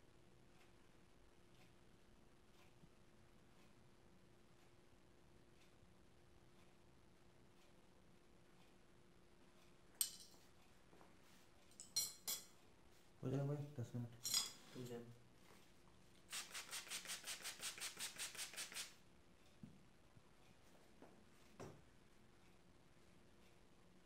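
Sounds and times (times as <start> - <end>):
spray bottle squirts: 16.3 - 19.0.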